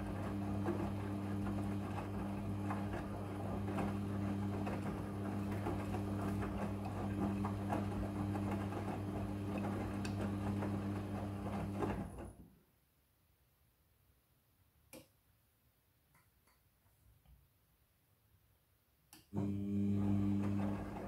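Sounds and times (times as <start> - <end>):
washing machine motor humming: 0.0 - 12.4, 19.3 - 21.0.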